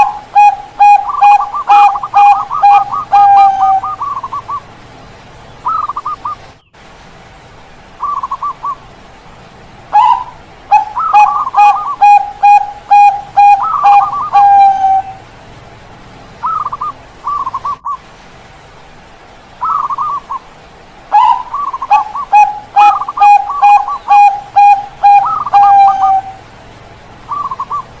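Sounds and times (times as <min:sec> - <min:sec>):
doves cooing: 0:00.0 - 0:04.8, 0:05.6 - 0:06.5, 0:09.9 - 0:15.4, 0:16.4 - 0:18.1, 0:19.6 - 0:26.6, 0:27.2 - 0:28.0.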